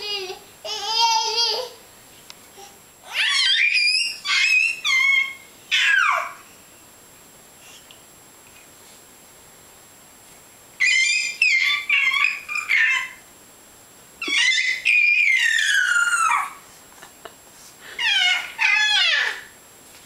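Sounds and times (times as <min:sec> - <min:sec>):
baby squealing: 0:03.1 - 0:06.4, 0:10.8 - 0:13.2, 0:14.2 - 0:16.6, 0:18.0 - 0:19.5.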